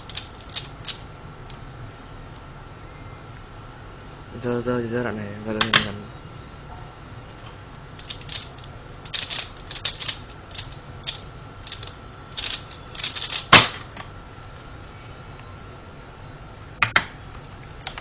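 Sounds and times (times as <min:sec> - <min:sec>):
plastic puzzle clicking: 0:08.0 - 0:13.5.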